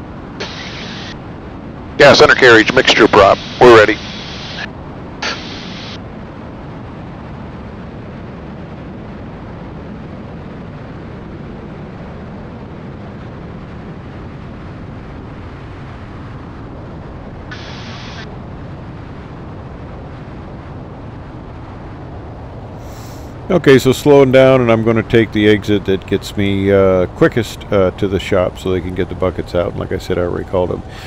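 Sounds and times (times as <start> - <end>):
aircraft engines rumbling: 0.0 - 31.0
airflow rushing: 1.9 - 6.0, 17.5 - 18.3, 21.9 - 23.6, 30.4 - 31.0.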